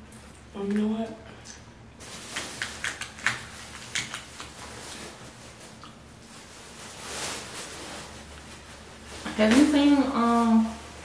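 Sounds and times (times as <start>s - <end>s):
plastic bag rustling: 2.0s - 11.0s
crab shells cracking: 2.4s - 4.6s.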